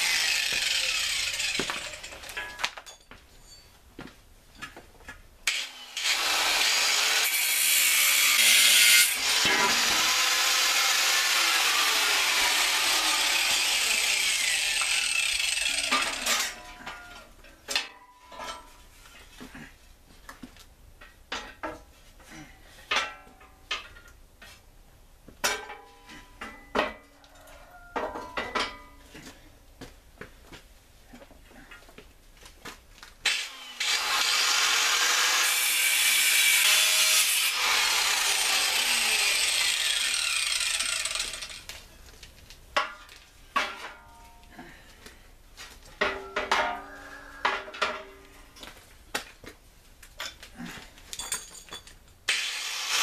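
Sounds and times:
power tool cutting steel: 0:00.0 - 0:02.3, 0:05.5 - 0:16.6, 0:33.2 - 0:41.7, 0:52.3 - 0:53.0
ringing metal clanks: 0:17.8 - 0:18.8, 0:46.0 - 0:48.2.

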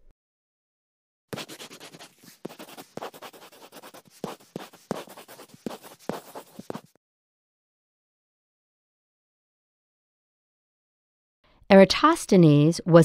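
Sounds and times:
quill pen scratching parchment: 0:01.3 - 0:07.0.

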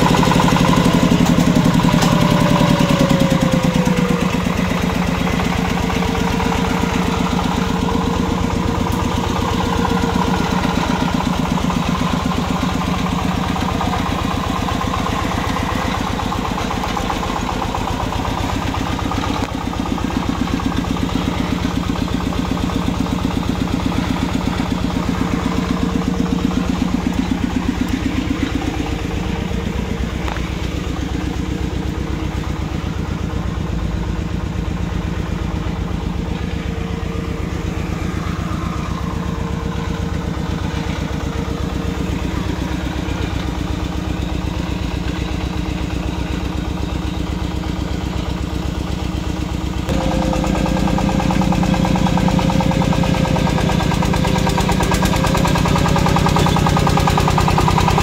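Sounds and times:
diesel tractor engine chugging: 0:00.0 - 0:58.0.

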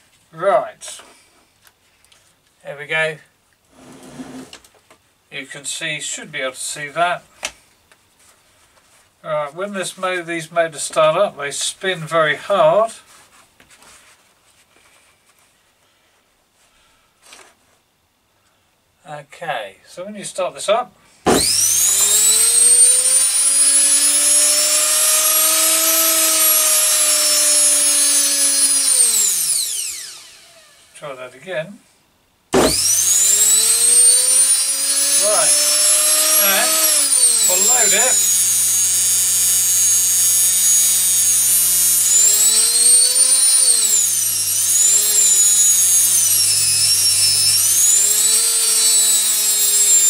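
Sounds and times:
washing machine motor whining: 0:21.3 - 0:30.9, 0:32.6 - 0:50.0.

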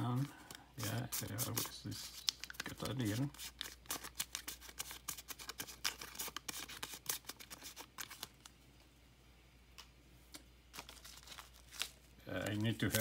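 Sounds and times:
packet crinkling: 0:00.4 - 0:08.5, 0:10.7 - 0:13.0.

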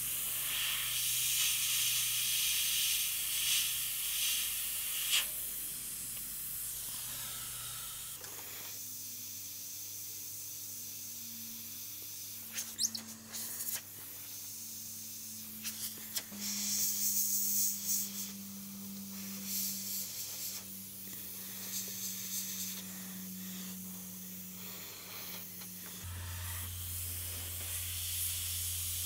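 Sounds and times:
airbrush spraying paint: 0:00.0 - 0:08.8, 0:11.7 - 0:29.0
low steady hum: 0:16.2 - 0:29.0.

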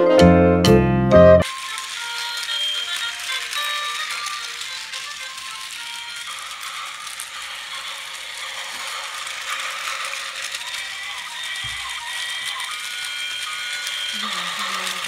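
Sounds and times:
toy train rattling whir: 0:01.4 - 0:15.0.

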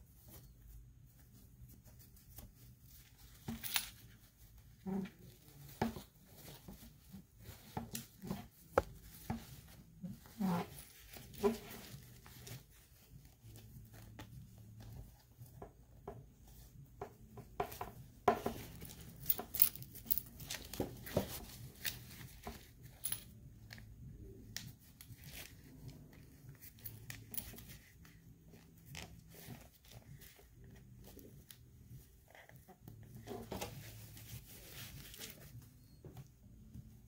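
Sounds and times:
cloth rustling and rubbing: 0:00.0 - 0:37.0.

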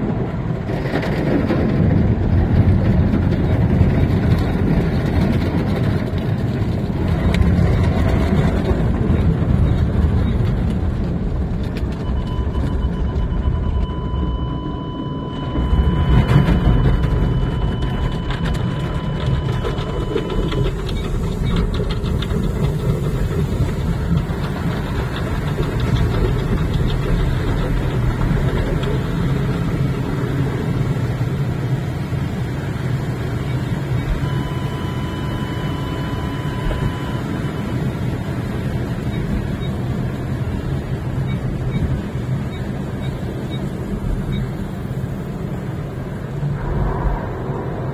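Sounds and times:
car wash equipment rumble: 0:00.0 - 0:47.9
steady high tone: 0:12.1 - 0:21.5.

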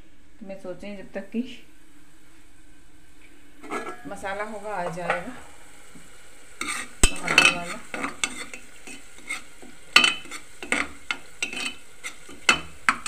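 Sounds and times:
oil sizzling: 0:00.0 - 0:13.0
ladle clinking against pot: 0:03.6 - 0:04.1, 0:10.0 - 0:13.0
ladle scraping pot: 0:03.6 - 0:04.2, 0:06.6 - 0:13.0.

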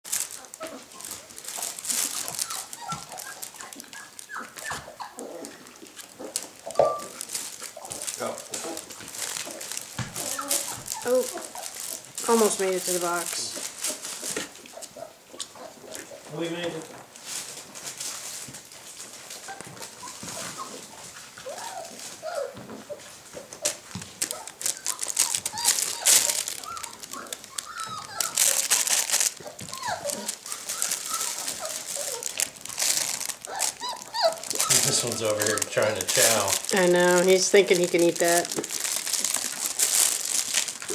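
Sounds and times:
puppies whining and yelping: 0:00.3 - 0:16.2, 0:19.2 - 0:36.3
fabric tunnel rustling: 0:24.1 - 0:40.9.

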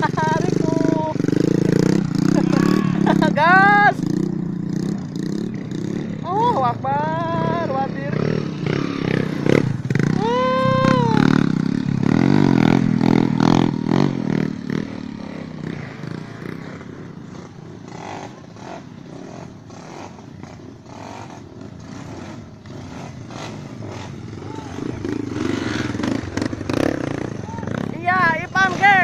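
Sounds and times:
motorcycle engine revving hard: 0:00.0 - 0:29.0
short high wail: 0:02.4 - 0:03.2, 0:10.2 - 0:11.4.

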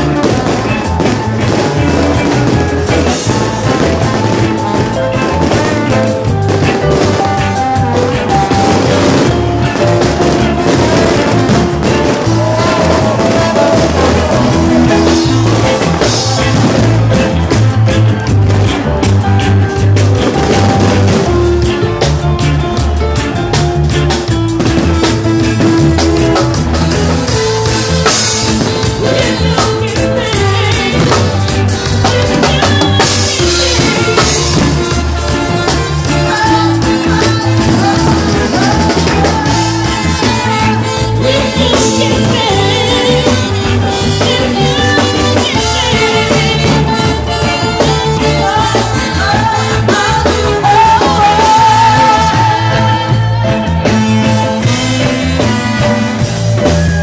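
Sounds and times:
drum and bass beat: 0:00.0 - 0:57.0
live band playing dance music: 0:00.0 - 0:57.0
person singing: 0:00.0 - 0:57.0.

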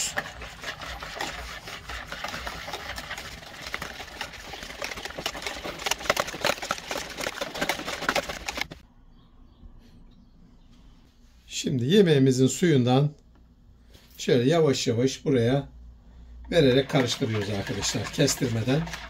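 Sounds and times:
whisk beating in plastic bowl: 0:00.0 - 0:08.8, 0:16.5 - 0:19.0.

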